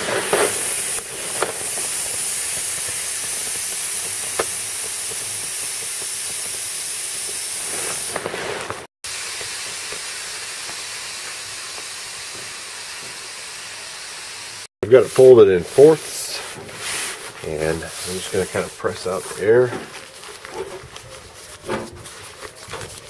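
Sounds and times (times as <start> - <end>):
air hissing from a valve: 0.0 - 19.2.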